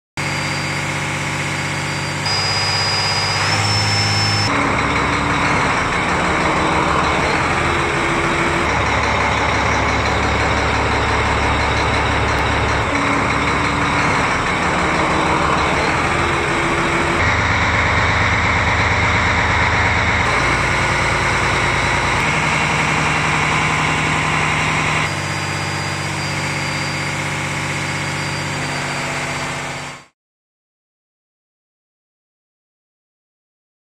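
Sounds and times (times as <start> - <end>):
diesel engine running: 0.2 - 30.1
faint high whine: 1.7 - 4.5.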